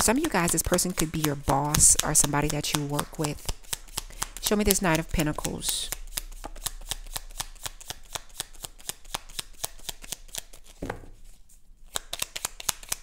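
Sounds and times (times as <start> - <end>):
cards being shuffled: 0.0 - 13.0
soft thump: 10.8 - 11.1.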